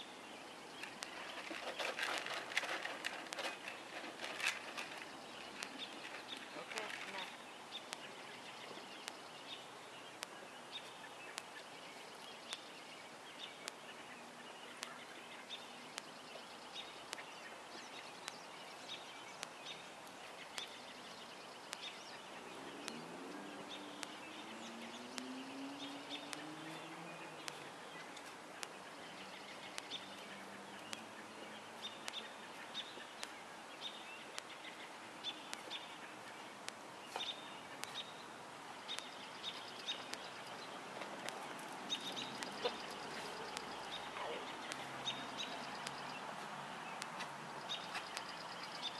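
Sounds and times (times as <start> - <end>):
birds chirping: 0.0 - 48.9.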